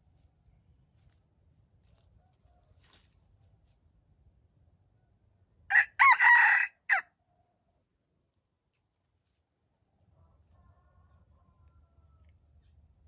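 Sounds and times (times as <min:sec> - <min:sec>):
rooster crowing: 0:05.7 - 0:07.0, 0:10.5 - 0:12.3.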